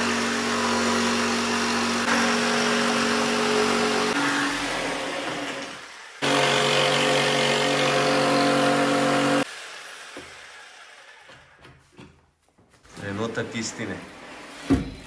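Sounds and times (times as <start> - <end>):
electric jigsaw cutting: 0.0 - 11.6.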